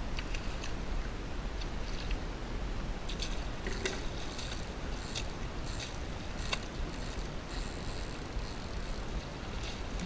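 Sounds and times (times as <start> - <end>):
fishing reel clicking: 3.7 - 9.1.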